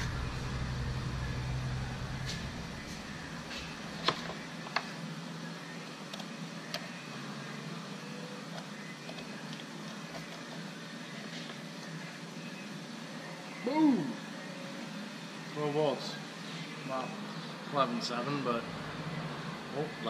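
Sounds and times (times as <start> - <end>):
low rumble: 0.0 - 3.5
steady low hum: 0.0 - 20.0.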